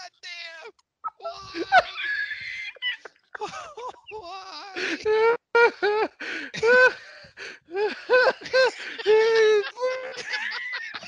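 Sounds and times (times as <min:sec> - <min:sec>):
men laughing: 0:01.1 - 0:11.0
breathy gasp: 0:04.8 - 0:05.1, 0:06.2 - 0:08.0.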